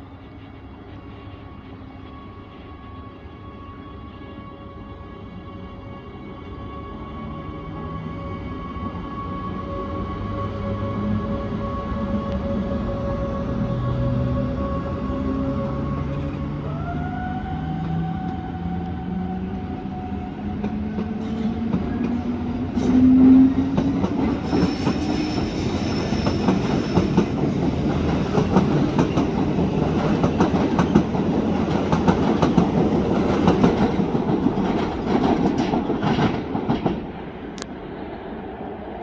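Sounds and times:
electric locomotive motors whining: 0.0s - 36.2s
train wheels rumbling and clattering: 17.7s - 37.7s.

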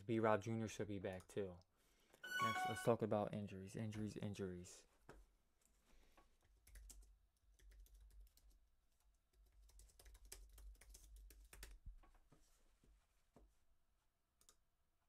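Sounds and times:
faint keyboard typing: 5.6s - 12.2s, 14.4s - 14.6s.

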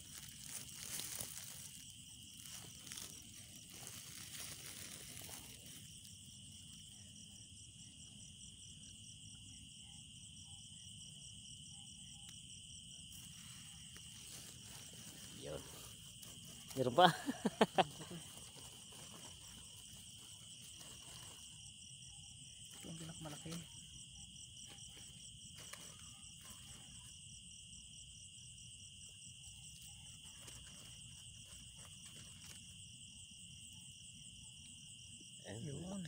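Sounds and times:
faint handling rustles: 0.0s - 6.1s
crickets and insects chirping: 0.0s - 36.0s.

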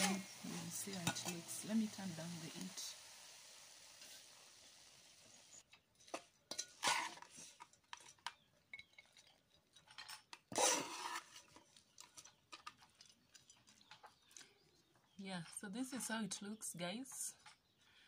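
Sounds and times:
metal spoon scraping a metal pot: 6.0s - 14.3s.

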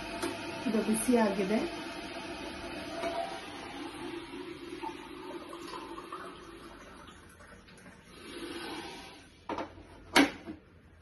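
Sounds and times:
water pouring into a mug: 1.8s - 9.4s.

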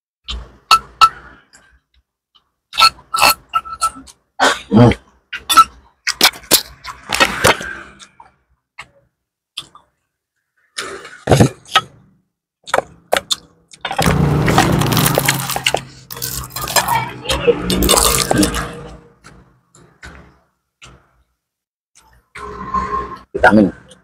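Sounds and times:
person chewing: 9.6s - 9.9s, 12.6s - 17.0s, 17.7s - 19.4s.

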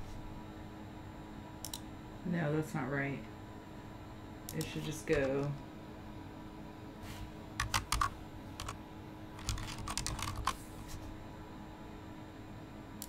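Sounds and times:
typing on computer keyboard: 7.6s - 8.8s, 9.4s - 10.6s.

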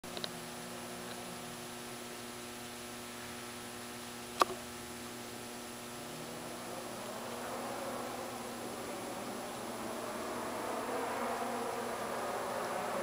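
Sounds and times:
low electrical hum with hiss: 0.1s - 13.0s
sharp click: 4.4s - 4.6s.

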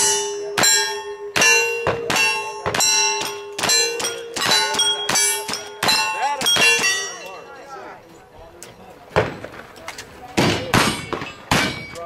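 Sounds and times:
steel targets ringing from gunfire: 0.0s - 7.5s, 10.4s - 12.0s.

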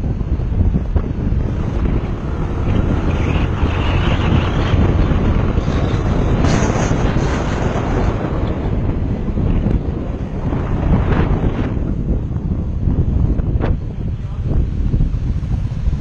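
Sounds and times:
motorcycle engine running: 0.0s - 8.2s
wind rush on microphone: 0.0s - 16.0s.

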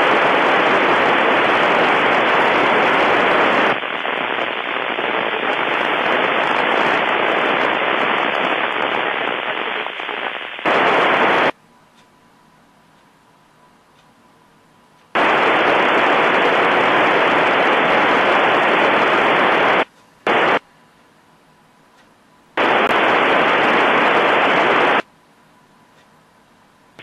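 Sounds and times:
radio static hiss: 0.0s - 11.6s, 15.1s - 20.8s, 22.5s - 25.1s.

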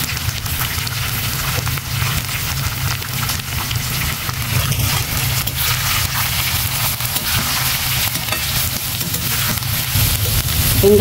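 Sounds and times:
onions sizzling in hot oil: 0.0s - 11.0s
metal spatula scraping pan: 4.5s - 10.0s.

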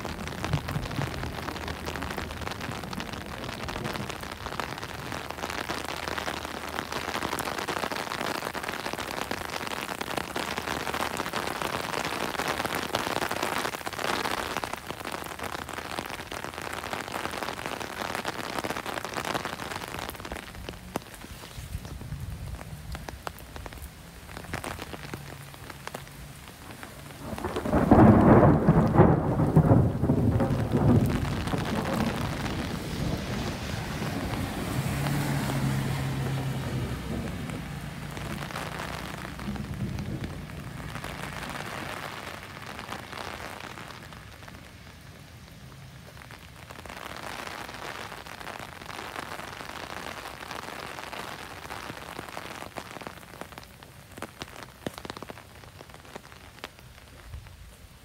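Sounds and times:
steady rain on pavement and foliage: 0.0s - 58.0s
loud thunder rumble: 27.2s - 35.1s, 35.8s - 41.4s.

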